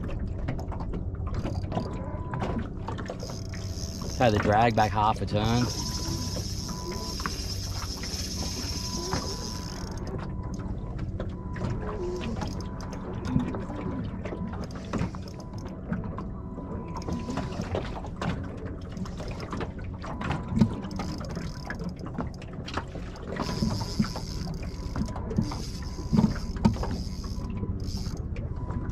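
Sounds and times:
water lapping against boat hull: 0.0 - 28.9
fishing reel clicking and whirring: 1.4 - 13.7, 14.4 - 16.2, 17.0 - 17.8, 20.3 - 28.3
high buzzing: 3.1 - 10.6, 23.0 - 28.2.

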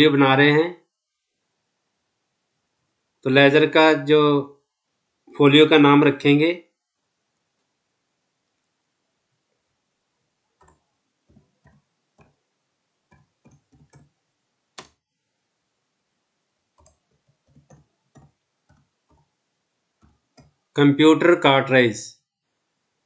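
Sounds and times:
computer keyboard typing: 13.1 - 14.1, 16.8 - 19.3.

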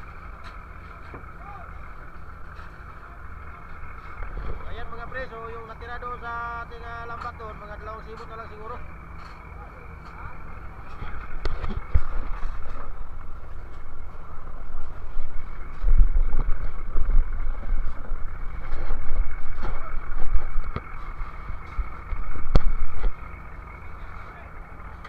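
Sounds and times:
boat engine running: 0.0 - 25.0
wind buffeting microphone: 11.0 - 23.8.

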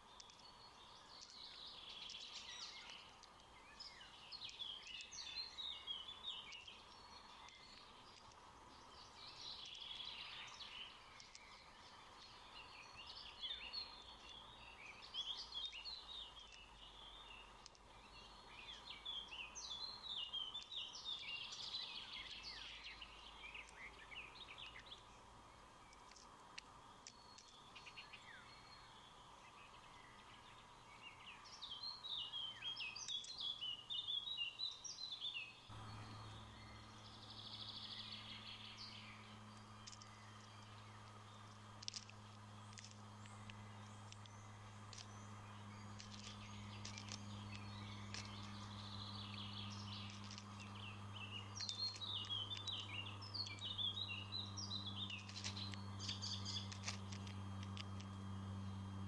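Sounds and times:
songbird warbling: 0.0 - 25.2, 27.0 - 59.0
faint outdoor background: 0.0 - 59.0
steady low hum: 35.2 - 59.0.

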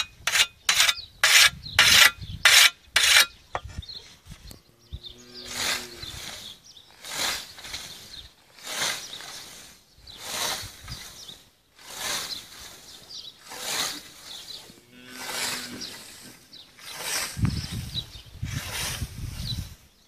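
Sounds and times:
scythe swishing through grass: 5.5 - 19.7.

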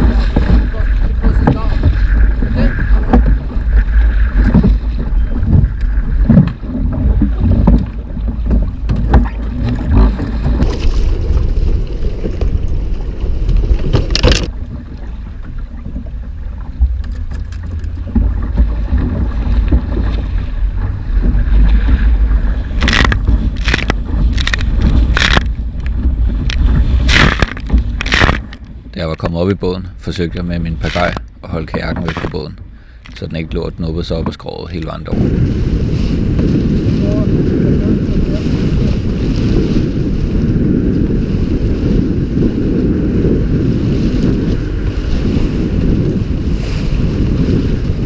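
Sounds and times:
motorboat running: 0.0 - 33.5, 34.2 - 48.0
water rushing past: 0.0 - 33.9
wind rumble on microphone: 0.0 - 48.0.

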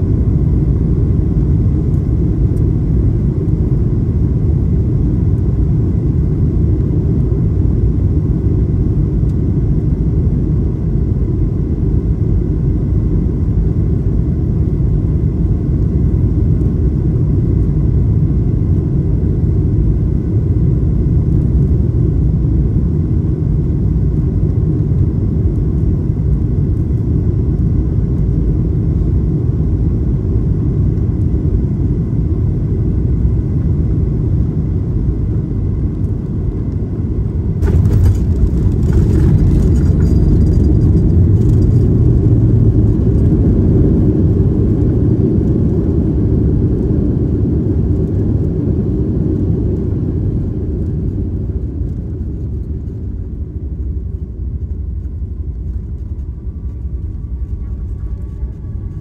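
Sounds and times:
airplane cabin rumble: 0.0 - 59.0
faint high whine: 44.1 - 59.0.

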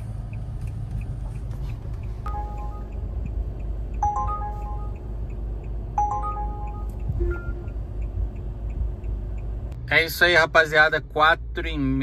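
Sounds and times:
low car interior rumble: 0.0 - 12.0
soft regular ticks: 0.1 - 2.3, 7.7 - 9.8
app alert chime: 2.3 - 2.9, 4.0 - 5.0, 6.0 - 7.7.

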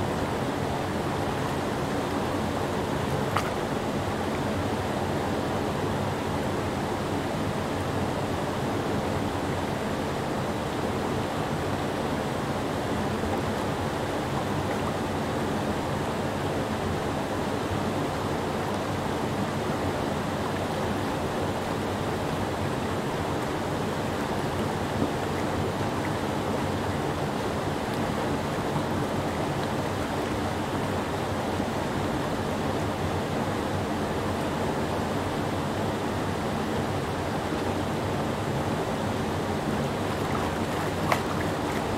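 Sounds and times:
whitewater rushing over rocks: 18.2 - 41.9.

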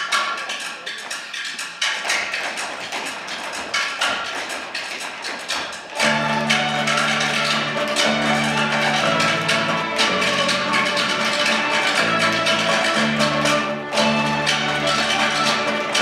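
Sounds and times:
percussive accents: 0.0 - 16.0
bowed strings: 5.9 - 16.0
held bass notes: 6.0 - 16.0.

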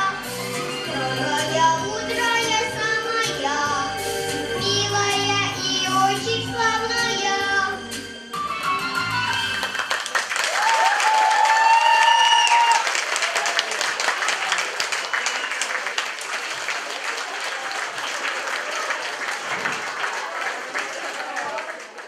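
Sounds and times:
audience applauding: 9.0 - 22.0.

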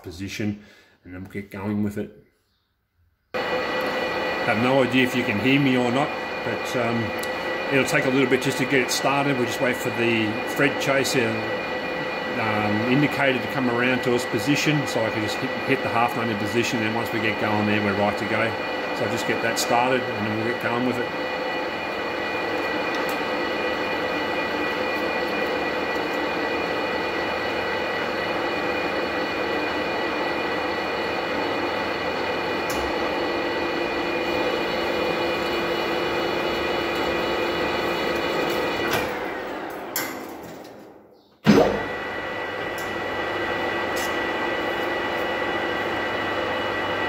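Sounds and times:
lathe gear whine: 3.4 - 40.9, 41.9 - 47.0
loud clunk of lathe starting: 38.0 - 40.8.

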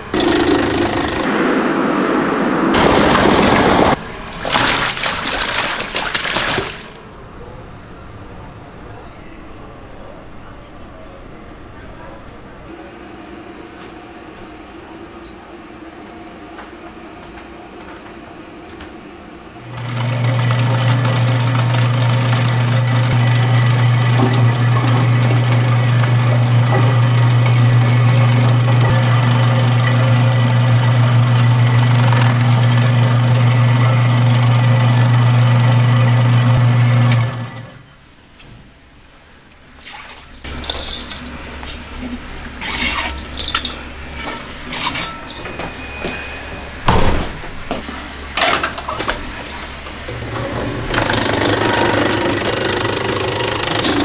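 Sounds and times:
machine humming and rushing: 0.0 - 4.6.

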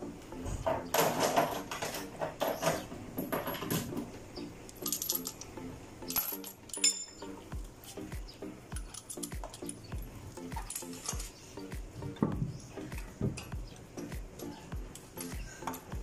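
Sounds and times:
lug nuts and wrench clinking: 4.7 - 7.3, 8.7 - 9.9, 10.5 - 11.4, 13.0 - 13.6.

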